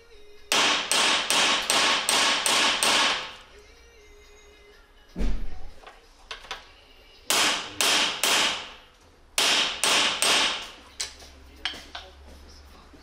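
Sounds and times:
hammer striking metal: 0.5s - 3.4s, 7.3s - 10.8s.

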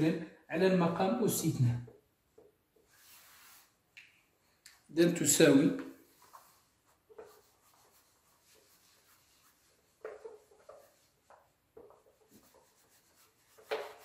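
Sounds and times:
eraser rubbing whiteboard: 2.8s - 3.8s, 6.0s - 14.0s.

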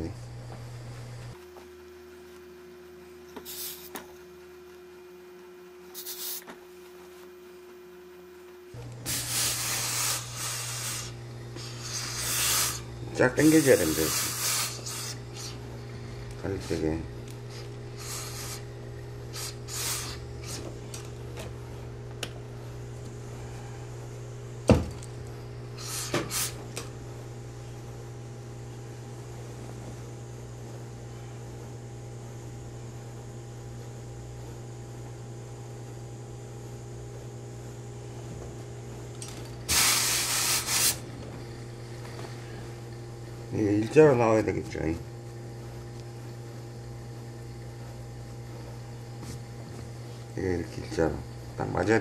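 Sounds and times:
steady low hum: 0.0s - 52.0s
steam iron hissing: 3.4s - 3.9s, 6.0s - 6.5s, 8.8s - 21.1s, 25.7s - 26.8s, 39.6s - 41.1s
iron thumping: 24.6s - 25.1s.

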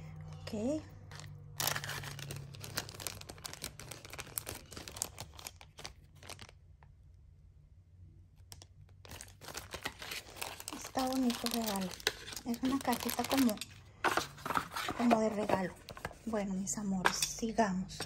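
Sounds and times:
packaging crinkling and rustling: 1.1s - 6.9s, 8.4s - 16.3s.

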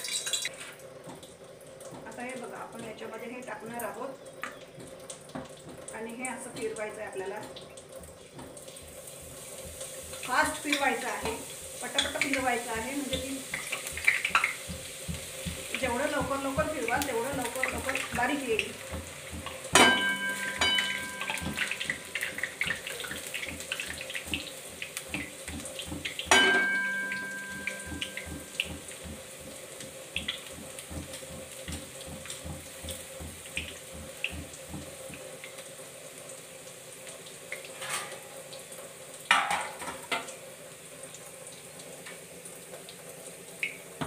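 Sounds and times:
batter hissing in hot fat: 8.8s - 19.7s.

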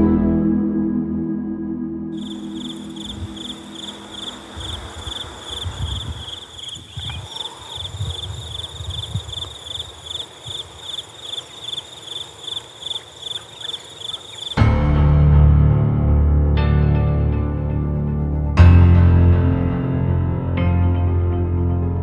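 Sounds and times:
crickets chirping: 2.2s - 14.6s.

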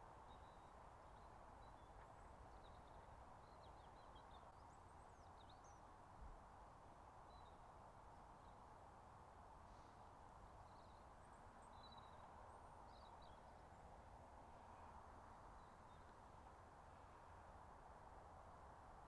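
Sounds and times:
faint steady hiss: 0.0s - 19.0s
faint bird chirps: 0.2s - 5.9s, 10.6s - 16.2s.

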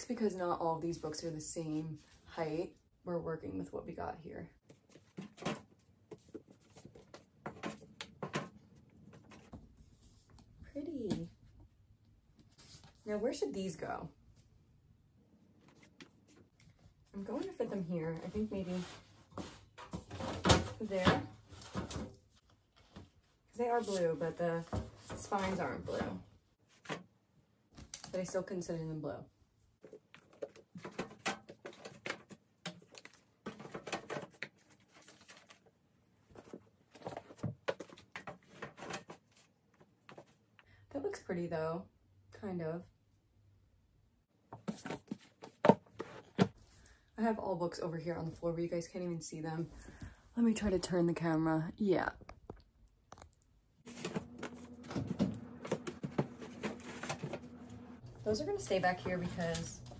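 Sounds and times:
books tapping and scraping: 4.6s - 9.7s, 29.8s - 35.7s, 36.3s - 40.4s, 44.5s - 46.6s, 53.9s - 58.0s
books knocking and sliding: 53.9s - 58.0s.

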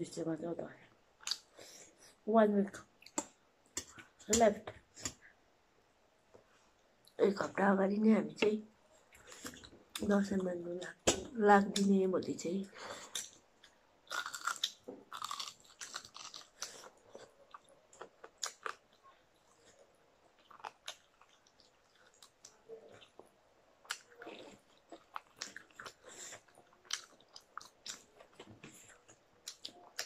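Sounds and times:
crunching fried chicken: 14.0s - 19.0s.

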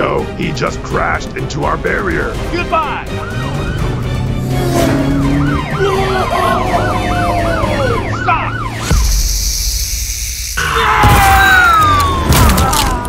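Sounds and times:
siren yelping: 3.1s - 9.2s.

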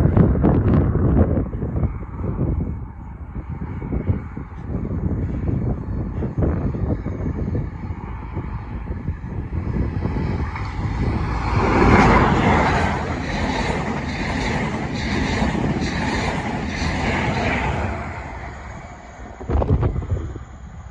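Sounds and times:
diesel train engine passing: 0.0s - 20.9s
train wheels clattering over rails: 10.4s - 18.4s.

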